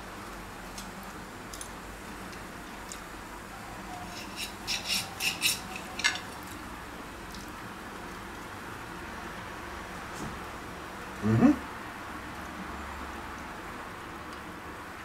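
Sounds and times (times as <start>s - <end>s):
knife scraping on a plate: 4.0s - 6.3s.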